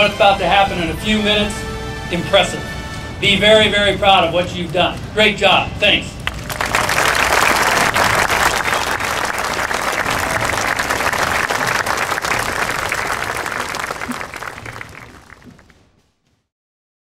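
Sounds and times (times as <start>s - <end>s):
audience applauding: 6.2s - 15.7s.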